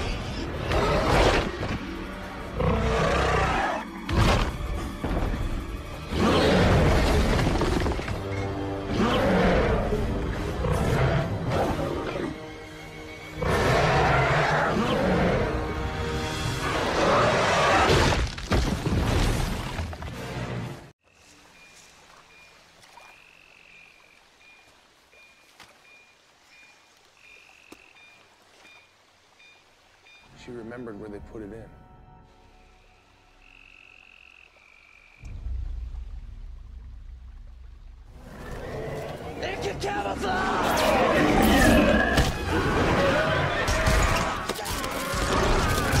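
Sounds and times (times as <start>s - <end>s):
dramatic orchestral music: 0.0s - 17.3s
faint jungle stream: 0.0s - 18.0s, 18.6s - 46.0s.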